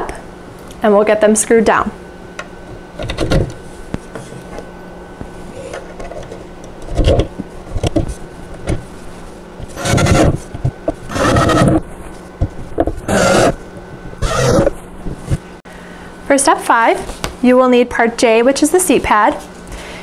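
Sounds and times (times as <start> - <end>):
cordless drill driving screws: 9.8 - 10.3, 11.1 - 11.8.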